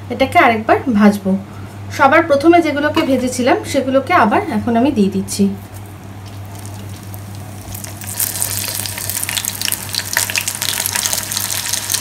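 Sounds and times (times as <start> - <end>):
chicken sizzling in hot oil: 6.4 - 12.0.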